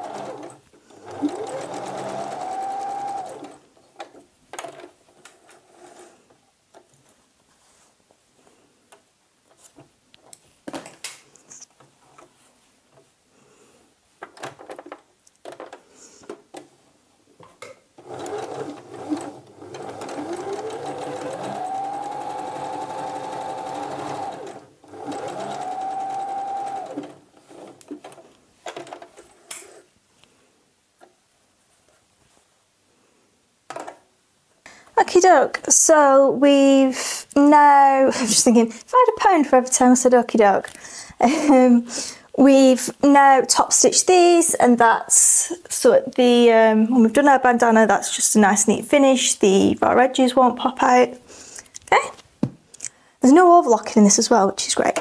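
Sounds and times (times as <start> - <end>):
sewing machine whine: 0.0 - 3.6, 18.0 - 27.8.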